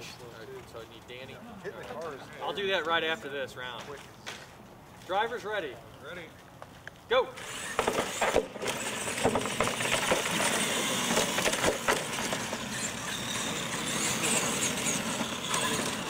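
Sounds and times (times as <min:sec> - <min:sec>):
toy truck motors whirring: 0:07.3 - 0:16.0
tyres rattling on asphalt: 0:07.5 - 0:16.0
toy trucks knocking on pavement: 0:07.8 - 0:12.6.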